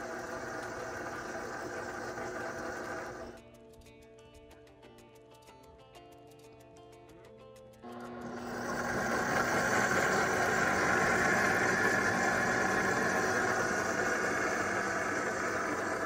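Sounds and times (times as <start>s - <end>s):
blender motor whirring: 0.0s - 3.4s, 7.9s - 16.0s.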